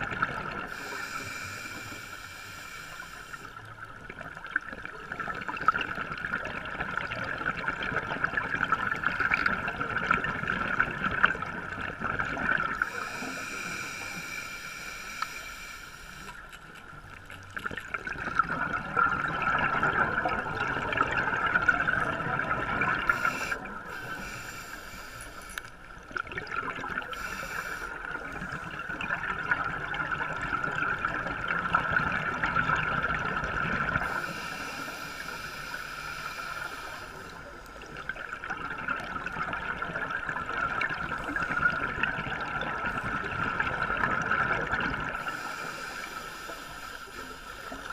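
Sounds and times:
regulator exhale bubbles crackling: 0:00.0 - 0:47.9
regulator inhale hiss: 0:00.6 - 0:03.8, 0:12.7 - 0:16.6, 0:23.0 - 0:26.0, 0:27.1 - 0:28.6, 0:34.0 - 0:38.2, 0:45.2 - 0:47.9.

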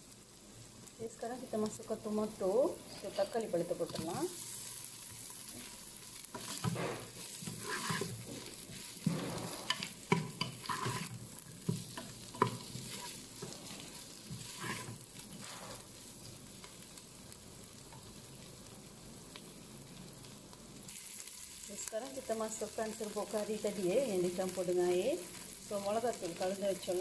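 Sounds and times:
vegetables sizzling in oil: 0:00.0 - 0:27.0
wooden spatula scraping pan: 0:05.5 - 0:15.9.

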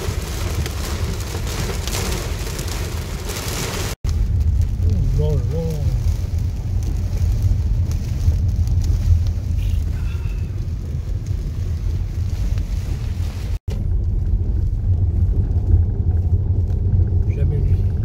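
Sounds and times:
car engine and tyres rumbling: 0:00.0 - 0:18.0.

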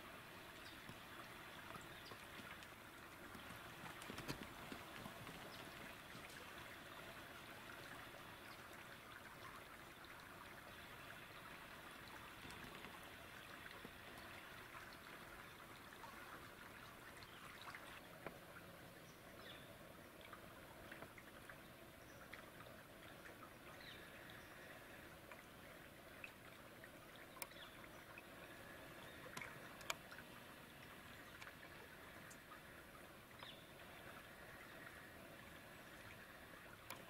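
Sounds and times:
faint outdoor hiss: 0:00.0 - 0:37.0
faint clicks: 0:00.6 - 0:06.8, 0:12.0 - 0:15.1, 0:27.2 - 0:27.7, 0:29.2 - 0:32.6, 0:36.7 - 0:37.0.

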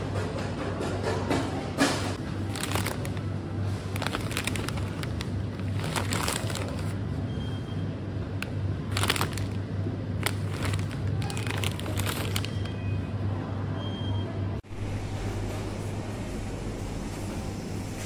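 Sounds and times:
packaging crinkling: 0:02.4 - 0:07.0, 0:08.4 - 0:12.8
low hum: 0:14.6 - 0:18.0.

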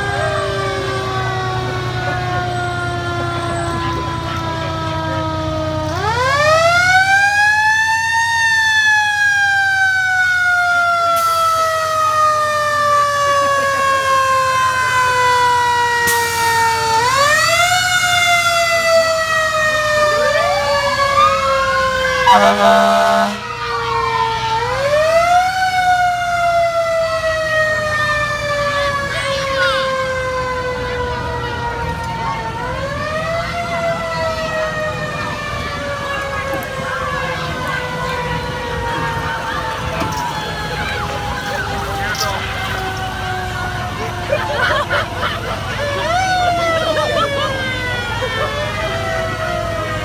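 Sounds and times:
fire engine siren wailing: 0:00.0 - 0:50.0
loud horn blast: 0:22.2 - 0:23.5.

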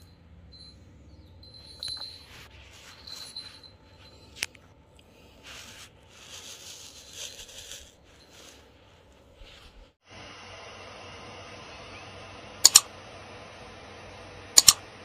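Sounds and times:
small bell jingling: 0:00.0 - 0:04.5
rustling and scraping on rug: 0:01.5 - 0:10.0
sharp click: 0:12.6 - 0:12.9, 0:14.6 - 0:14.8.

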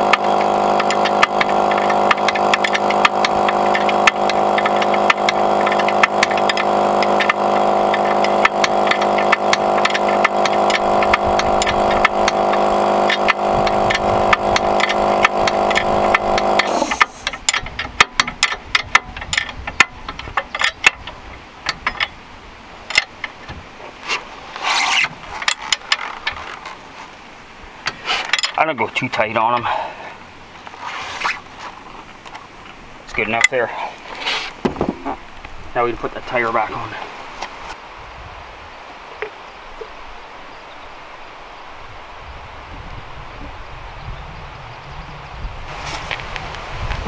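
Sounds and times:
wrench clicking and scraping: 0:00.0 - 0:22.2, 0:22.8 - 0:26.8, 0:27.8 - 0:30.0
machine humming: 0:00.0 - 0:23.8.

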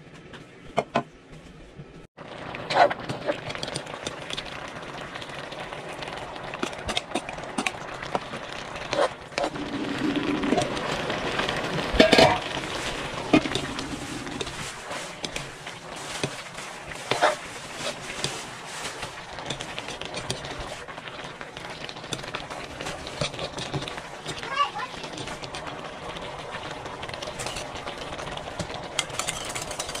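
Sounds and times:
food sizzling: 0:02.2 - 0:30.0
metal spatula scraping a wok: 0:12.0 - 0:20.8, 0:22.9 - 0:24.4, 0:27.4 - 0:27.7, 0:29.0 - 0:30.0.

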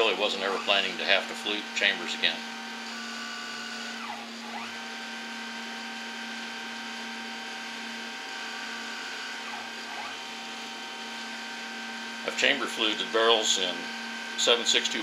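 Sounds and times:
cutter scraping metal: 0:00.0 - 0:05.0, 0:08.4 - 0:10.8
mill motors whining: 0:00.0 - 0:15.0.

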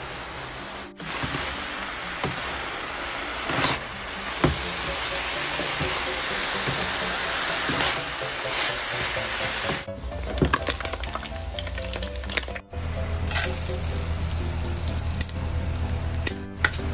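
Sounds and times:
greens sizzling in a hot pan: 0:00.0 - 0:12.6, 0:13.2 - 0:16.9
metal spatula scraping a pan: 0:03.3 - 0:09.8.

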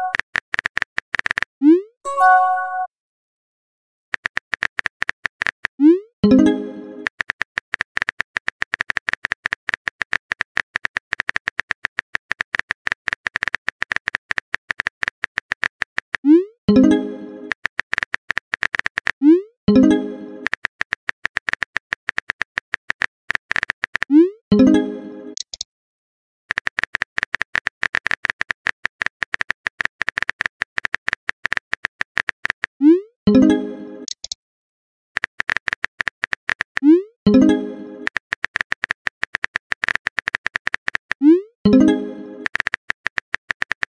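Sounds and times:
phone keyboard typing clicks: 0:00.0 - 0:01.5, 0:04.2 - 0:05.8, 0:07.0 - 0:16.3, 0:17.5 - 0:19.2, 0:19.8 - 0:24.1, 0:26.5 - 0:32.8, 0:34.0 - 0:34.4, 0:35.2 - 0:43.9.

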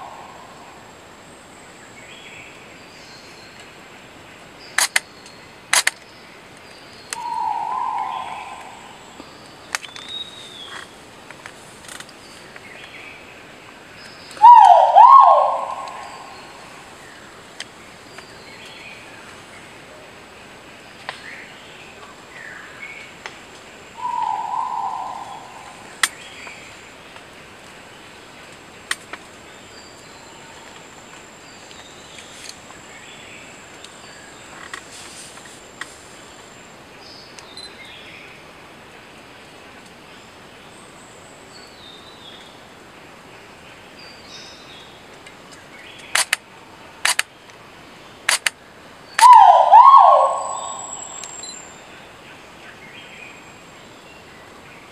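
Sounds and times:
small birds chirping: 0:04.6 - 0:11.0, 0:49.0 - 0:54.9
sharp clicks: 0:04.8 - 0:05.1, 0:05.7 - 0:06.0, 0:46.0 - 0:46.4, 0:47.0 - 0:47.3, 0:48.3 - 0:48.6.

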